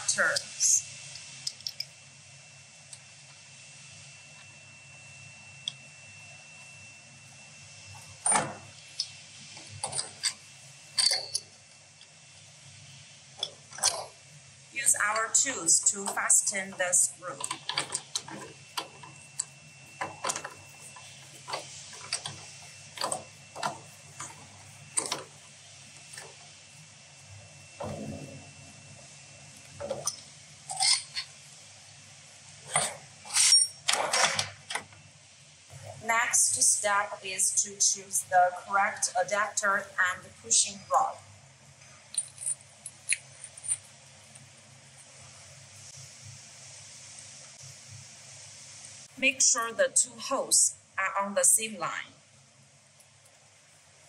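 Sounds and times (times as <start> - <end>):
faint steady hum: 0.0 - 54.0
metal tools clinking and knocking: 11.0 - 11.4, 42.1 - 43.9.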